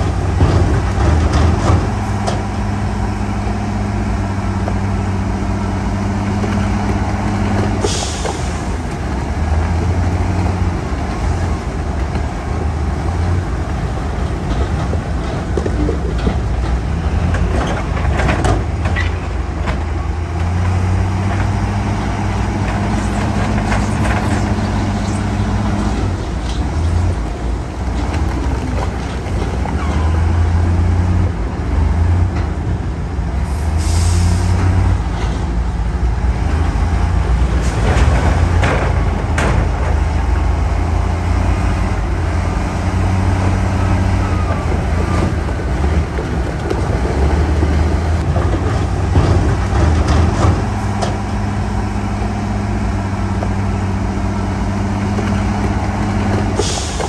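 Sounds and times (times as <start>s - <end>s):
heavy diesel engines droning: 0.0s - 57.0s
air brake hiss: 7.8s - 8.7s, 33.5s - 34.6s, 56.6s - 57.0s.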